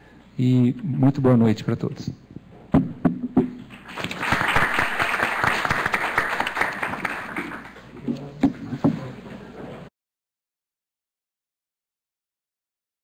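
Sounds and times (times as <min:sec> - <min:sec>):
audience applauding: 0:03.7 - 0:07.8.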